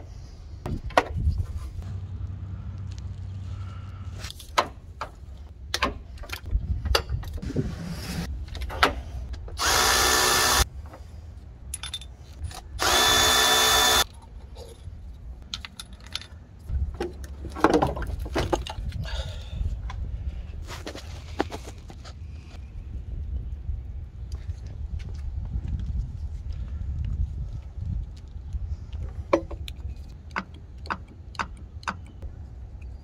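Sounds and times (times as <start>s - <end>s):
handheld power tool running: 9.6s - 10.6s, 12.8s - 14.0s
tools clicking and clanking: 11.7s - 13.0s, 13.6s - 18.8s.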